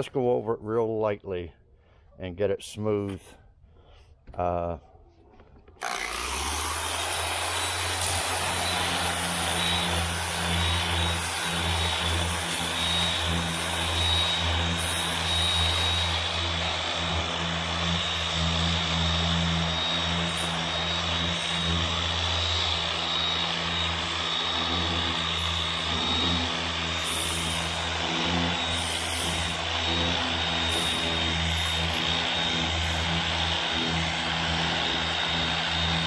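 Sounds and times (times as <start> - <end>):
angle grinder sanding filler: 5.8 - 36.0.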